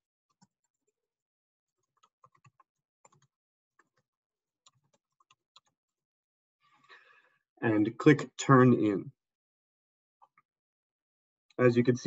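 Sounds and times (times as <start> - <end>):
keyboard typing: 1.8 - 4.0, 4.6 - 5.8.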